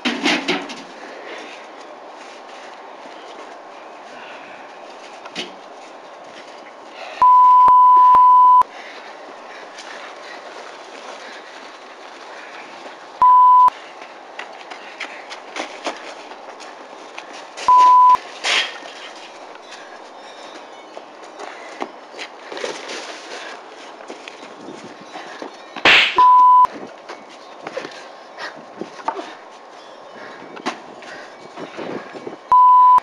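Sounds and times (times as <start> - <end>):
electronic bleeps: 7.2 - 8.6, 13.2 - 13.7, 17.7 - 18.2, 26.2 - 26.7, 32.5 - 33.0.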